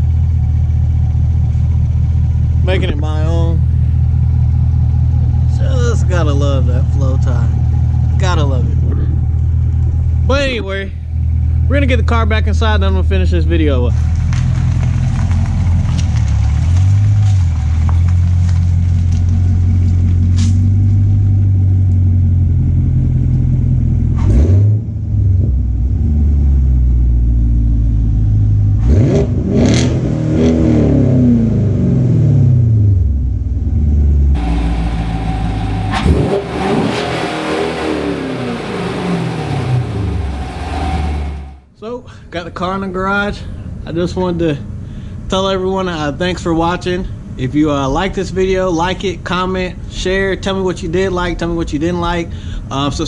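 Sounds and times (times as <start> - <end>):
car engine idling and revving: 0.0 - 41.7.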